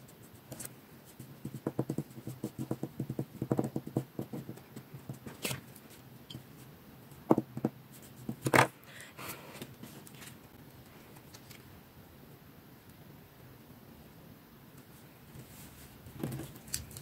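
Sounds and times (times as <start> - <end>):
paper rustle: 9.8 - 10.4.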